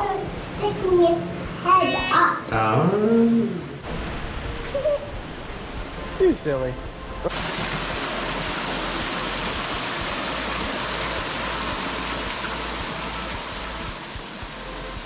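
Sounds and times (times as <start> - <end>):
waterfall splashing into pond: 3.8 - 15.0.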